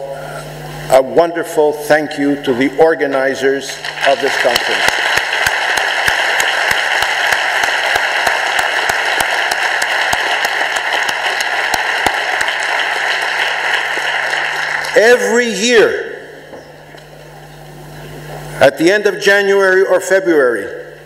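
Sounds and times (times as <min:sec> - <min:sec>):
speaker clapping: 0:03.1 - 0:15.9
audience applauding: 0:03.8 - 0:15.4.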